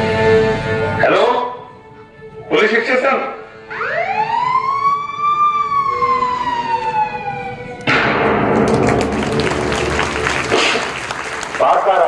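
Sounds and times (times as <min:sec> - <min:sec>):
siren wail: 0:03.6 - 0:07.9
loud burst of noise with knocks: 0:07.9 - 0:09.4.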